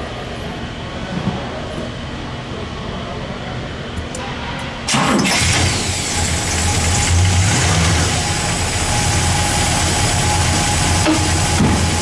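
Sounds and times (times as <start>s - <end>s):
car engine idling: 4.9s - 12.0s.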